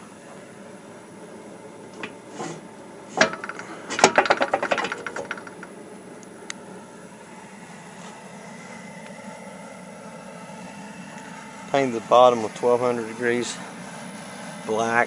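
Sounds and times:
metal damper clanking and rattling: 0:02.0 - 0:05.7.

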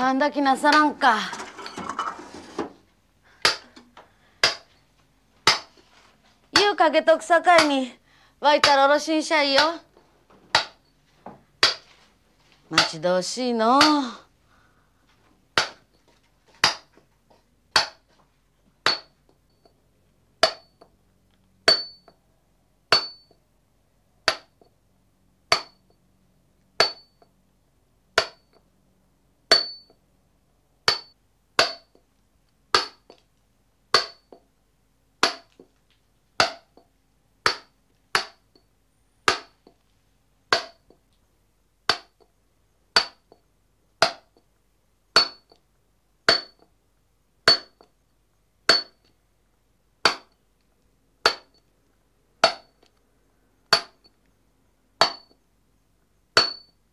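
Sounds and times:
hammer striking chisel into stone: 0:03.4 - 0:03.8, 0:04.4 - 0:04.7, 0:05.5 - 0:05.7, 0:10.5 - 0:10.8, 0:11.6 - 0:11.8, 0:15.6 - 0:15.9, 0:16.6 - 0:16.9, 0:17.7 - 0:18.1, 0:18.8 - 0:19.7, 0:20.4 - 0:20.9, 0:21.7 - 0:22.2, 0:22.9 - 0:23.4, 0:24.2 - 0:24.7, 0:25.5 - 0:25.8, 0:26.8 - 0:27.3, 0:28.2 - 0:28.6, 0:29.5 - 0:30.0, 0:30.9 - 0:32.0, 0:32.7 - 0:33.2, 0:33.9 - 0:34.4, 0:35.2 - 0:35.7, 0:36.4 - 0:38.7, 0:39.3 - 0:39.8, 0:40.5 - 0:41.0, 0:41.9 - 0:42.3, 0:43.0 - 0:43.4, 0:44.0 - 0:44.4, 0:45.2 - 0:45.6, 0:46.3 - 0:46.7, 0:47.5 - 0:47.9, 0:48.7 - 0:49.1, 0:50.0 - 0:50.4, 0:51.2 - 0:51.6, 0:52.4 - 0:52.8, 0:53.7 - 0:54.2, 0:55.0 - 0:55.4, 0:56.4 - 0:56.8.

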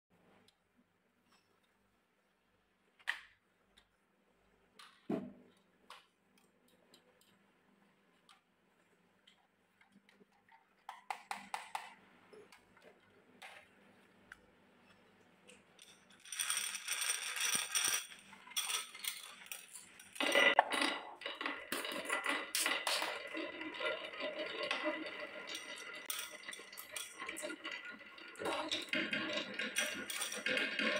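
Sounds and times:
glass marbles clacking: 0:15.8 - 0:30.9.

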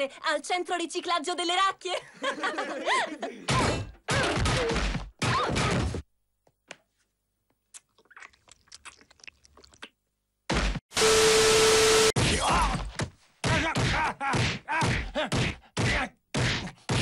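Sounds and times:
chewing and crunching: 0:07.7 - 0:10.0.

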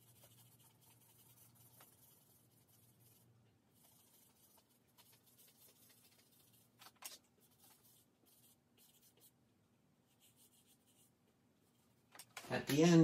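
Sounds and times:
charcoal scratching on paper: 0:00.0 - 0:09.4, 0:10.1 - 0:11.1.

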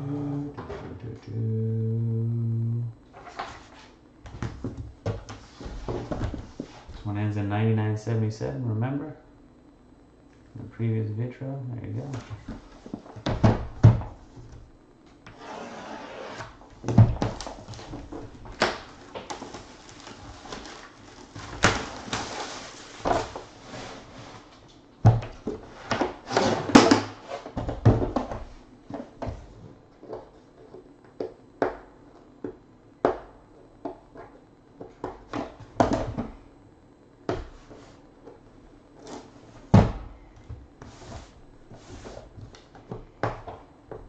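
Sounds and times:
plastic wrap and cardboard crackling: 0:17.3 - 0:24.5.

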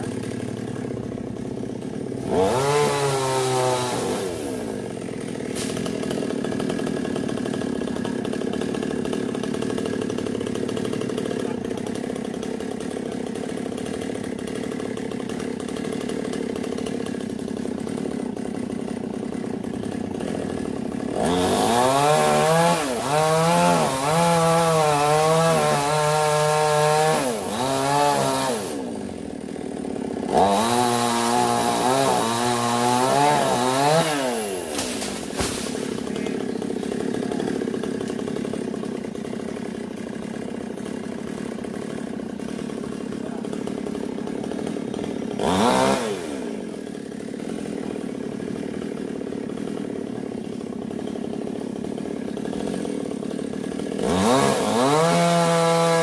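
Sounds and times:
chainsaw cutting wood: 0:00.0 - 0:56.0
chainsaw idling and revving: 0:00.0 - 0:56.0.

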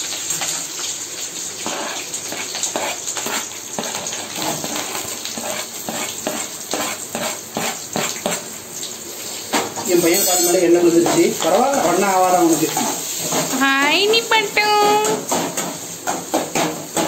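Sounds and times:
hot oil sizzling and crackling: 0:00.0 - 0:17.0
onions scraped off cutting board: 0:01.6 - 0:08.5.

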